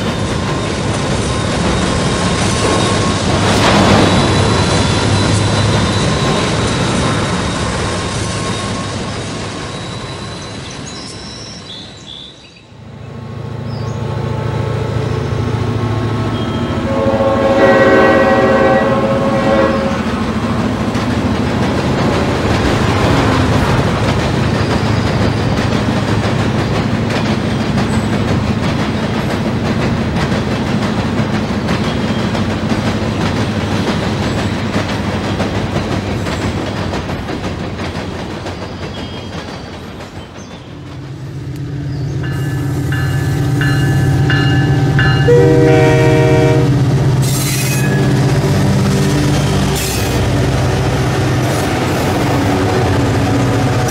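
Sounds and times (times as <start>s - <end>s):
train cars clattering over track: 0.0s - 12.4s, 13.0s - 53.9s
multi-tone train horn: 16.4s - 20.2s, 43.1s - 48.2s.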